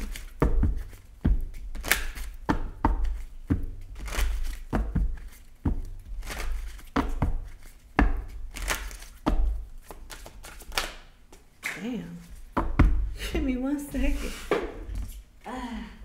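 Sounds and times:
deck thumping: 0.0s - 11.4s, 12.3s - 13.2s
cards being shuffled: 0.0s - 11.5s.

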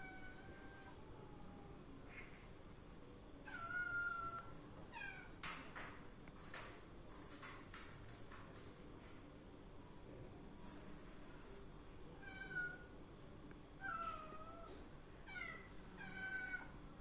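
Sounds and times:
cat meowing: 0.0s - 1.5s, 3.5s - 5.3s, 12.2s - 12.9s, 13.8s - 16.8s.

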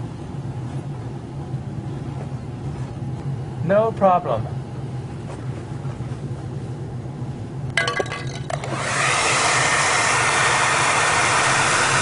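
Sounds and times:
hair dryer blowing: 8.4s - 12.0s.

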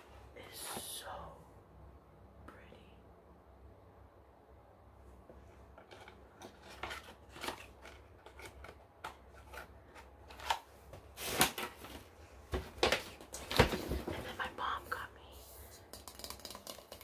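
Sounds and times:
fingertips tapping plastic bottle: 15.8s - 17.0s.

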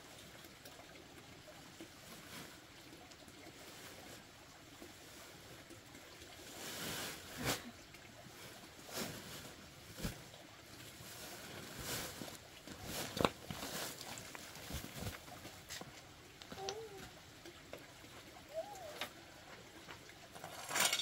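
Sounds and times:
plastic sack rustling: 10.9s - 15.9s.

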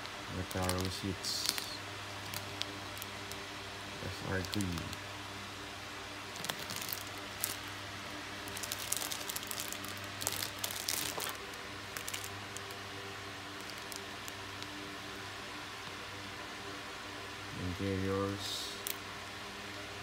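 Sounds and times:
steady low hum: 0.0s - 20.0s
plastic bags crinkling: 0.3s - 3.4s, 4.0s - 5.0s, 6.3s - 7.8s, 8.4s - 12.8s, 13.5s - 14.7s.

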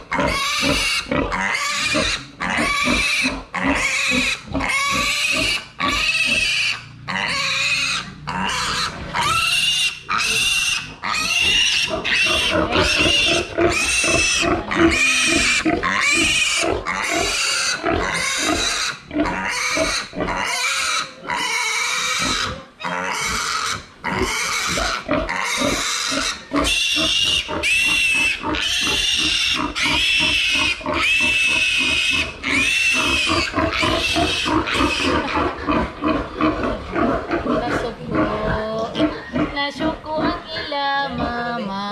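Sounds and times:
piglet squealing: 0.0s - 41.4s.

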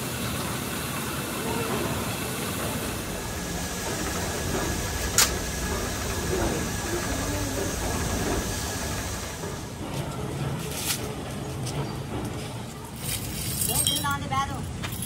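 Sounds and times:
workshop hiss: 0.0s - 10.1s.

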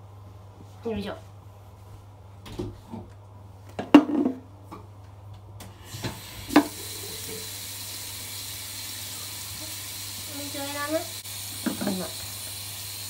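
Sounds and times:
running water hiss: 5.8s - 13.0s.

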